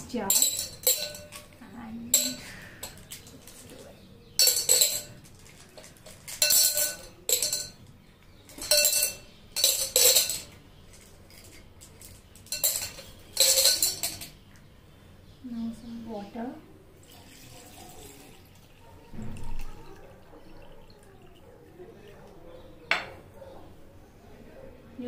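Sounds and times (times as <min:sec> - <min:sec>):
pebbles clinking in a glass jar: 0:00.1 - 0:14.4.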